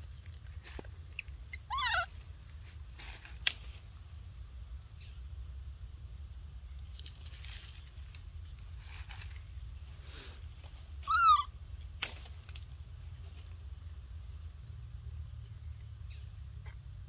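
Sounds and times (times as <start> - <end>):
squeaky animal call: 1.5 - 2.1, 11.0 - 11.5.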